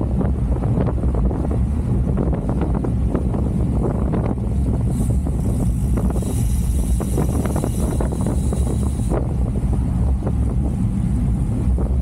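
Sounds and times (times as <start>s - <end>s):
wind buffeting microphone: 0.0s - 12.0s
high hiss: 4.9s - 9.3s.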